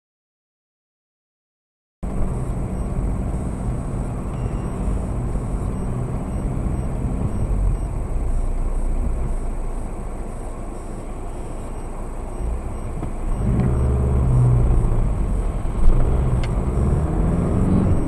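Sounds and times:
car engine and tyres rumbling: 2.0 - 18.0.

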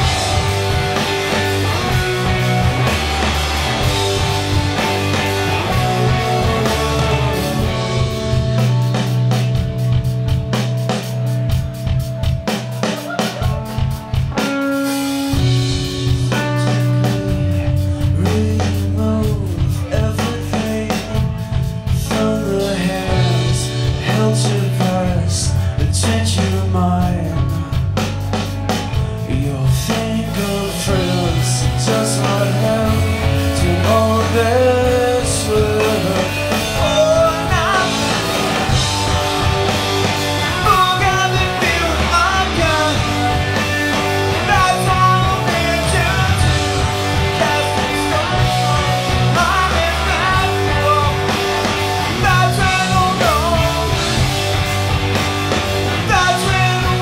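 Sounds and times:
drum kit: 0.0 - 57.0
electric guitars: 0.0 - 57.0
man singing into microphone: 17.4 - 27.8, 29.3 - 38.2, 40.5 - 43.3, 44.4 - 51.3, 52.1 - 54.1, 56.0 - 57.0.

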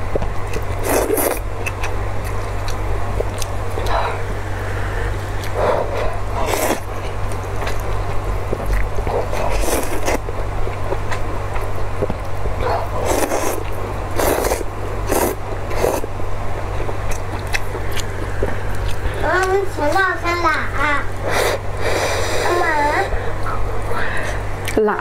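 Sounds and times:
low steady hum: 0.0 - 25.0
chewing: 0.2 - 4.3, 5.3 - 20.0
noodle slurping: 9.0 - 10.2, 12.7 - 16.1.

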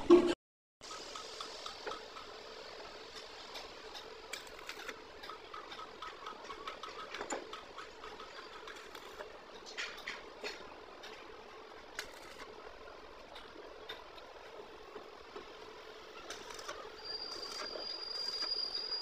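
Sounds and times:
arc welding crackling: 0.8 - 6.9, 7.6 - 9.3, 11.2 - 13.2, 15.8 - 19.0.

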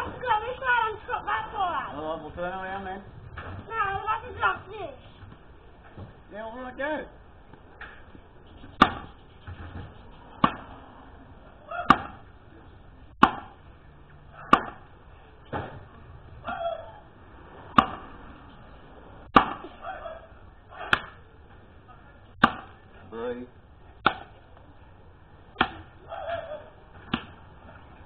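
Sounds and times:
axe chopping log: 8.8 - 9.2, 10.4 - 10.7, 11.9 - 12.3, 13.2 - 13.6, 14.5 - 14.9, 17.8 - 18.1, 19.3 - 19.8, 20.9 - 21.2, 22.4 - 22.8, 24.0 - 24.3, 25.6 - 25.9, 27.0 - 27.4.

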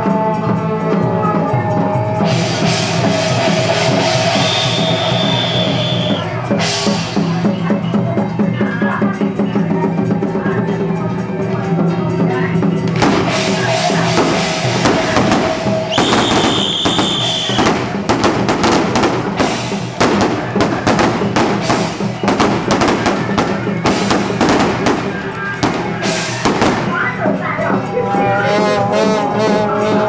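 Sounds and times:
festival music with drums: 0.0 - 30.0
firecrackers crackling: 2.3 - 7.8, 12.8 - 28.4
high whistling tone: 4.2 - 6.3, 13.6 - 17.7.

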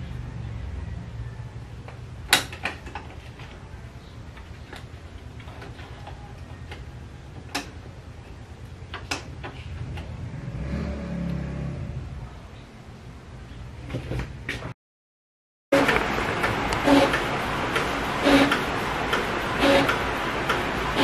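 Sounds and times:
printer mechanical hum: 15.8 - 21.0.

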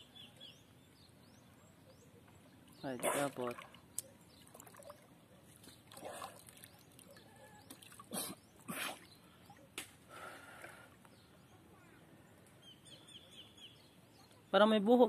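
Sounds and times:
water splashing and sloshing: 2.4 - 10.9.

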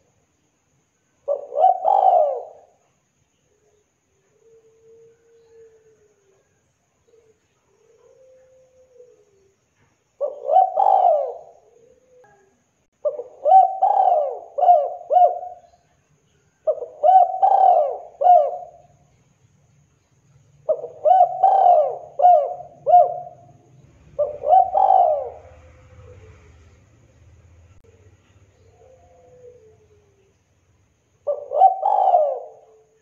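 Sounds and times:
dove cooing: 1.2 - 2.9, 4.3 - 9.6, 10.2 - 15.9, 16.6 - 19.1, 20.6 - 26.9, 27.7 - 30.4, 31.1 - 33.0.

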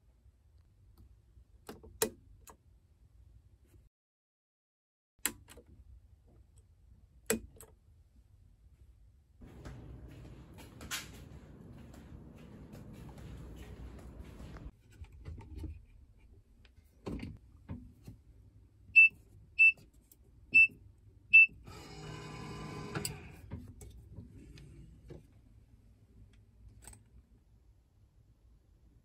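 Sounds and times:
motorised lock whirring: 21.7 - 23.4.

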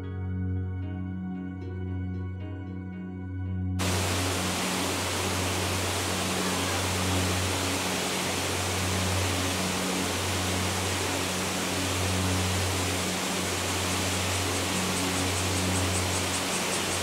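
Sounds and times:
faint low music tones: 0.0 - 17.0
waterfall rushing: 3.8 - 17.0.

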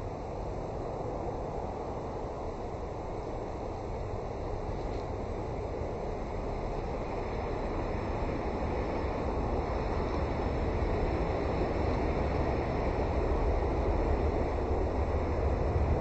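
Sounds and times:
steady low rumbling: 5.2 - 16.0.

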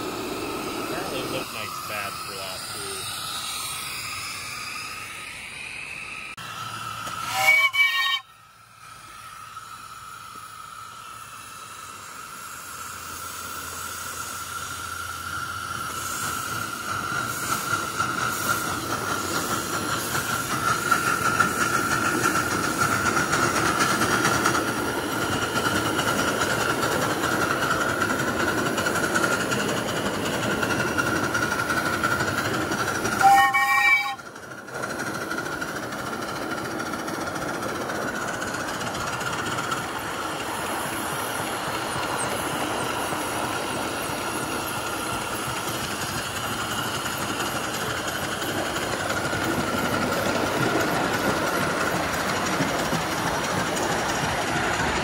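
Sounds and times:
steam locomotive hissing and running: 0.0 - 55.0
steam whistle: 7.0 - 8.4, 33.2 - 34.2.

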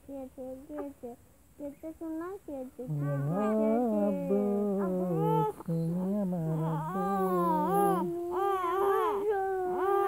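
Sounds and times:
child singing: 0.0 - 10.0
person humming a tune: 2.8 - 10.0.

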